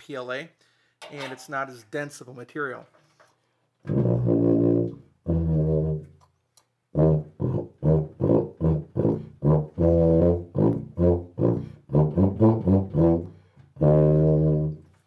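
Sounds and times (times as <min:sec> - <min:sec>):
tuba notes: 0:03.8 - 0:06.2, 0:06.9 - 0:14.9.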